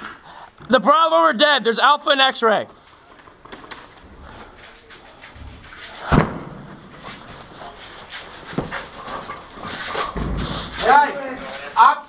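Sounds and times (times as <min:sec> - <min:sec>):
sharp thump: 0:06.0 - 0:06.7.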